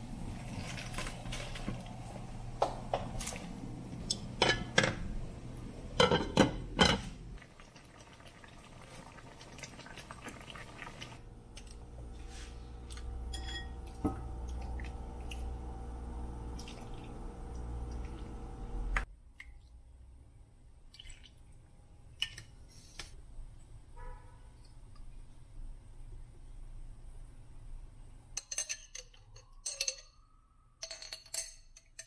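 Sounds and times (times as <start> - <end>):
liquid sloshing in pot: 6.9 - 15.8, 16.4 - 18.4.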